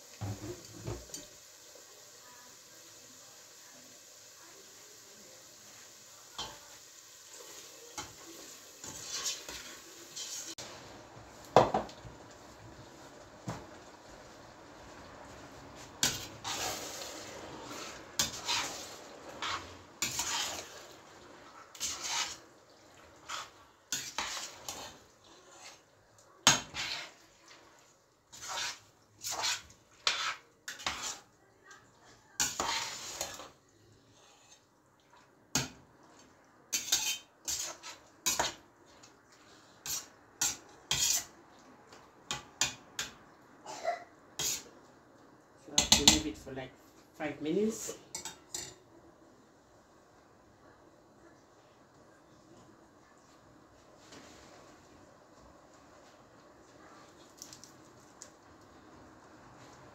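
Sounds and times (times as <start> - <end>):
metal spoon scraping saucepan: 8.8 - 10.6, 16.0 - 20.9, 21.7 - 22.4, 23.2 - 25.9, 26.5 - 27.2, 28.3 - 31.4, 32.4 - 34.7, 36.7 - 38.6, 39.8 - 41.3, 44.4 - 44.7.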